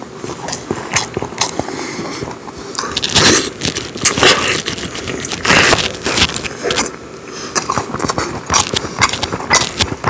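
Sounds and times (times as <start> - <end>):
man biting and chewing food: 0.0 - 10.0.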